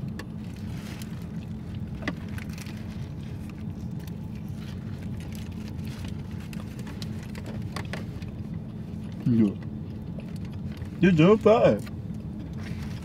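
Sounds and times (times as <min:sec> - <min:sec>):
car cabin hum: 0:00.0 - 0:13.0
food wrappers crinkling: 0:00.3 - 0:08.3.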